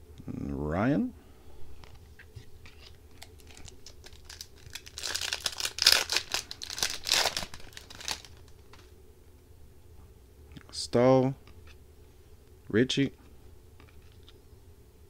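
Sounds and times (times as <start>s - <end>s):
foil wrapper crinkling: 2.7s - 8.9s.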